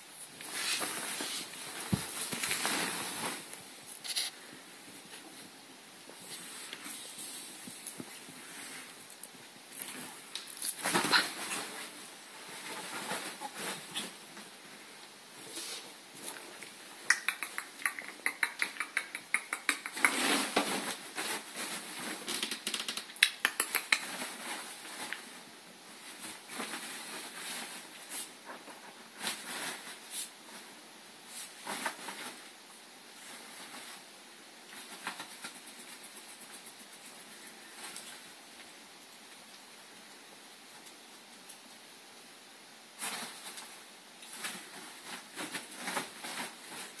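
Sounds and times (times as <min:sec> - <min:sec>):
bedding rustling: 0:00.1 - 0:17.0, 0:20.0 - 0:22.4, 0:24.0 - 0:36.0, 0:43.0 - 0:47.0
ferret clucking clicks: 0:17.1 - 0:20.2.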